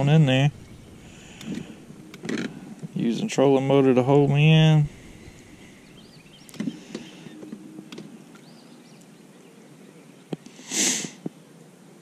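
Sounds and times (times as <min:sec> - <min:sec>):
brief hiss: 0:00.6 - 0:02.8, 0:10.5 - 0:11.2.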